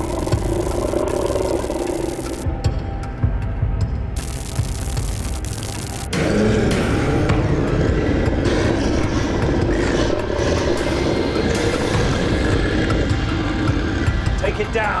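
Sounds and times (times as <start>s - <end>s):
monster roaring: 0.0s - 2.4s.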